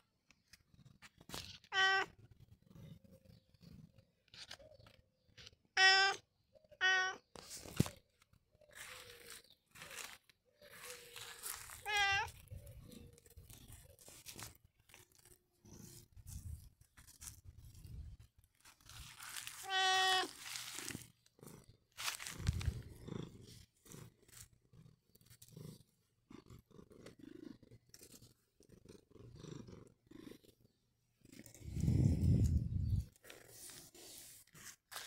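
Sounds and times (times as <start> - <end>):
cat meowing: 1.6 - 2.2, 5.8 - 6.2, 6.8 - 7.3, 11.8 - 12.4, 19.5 - 20.4.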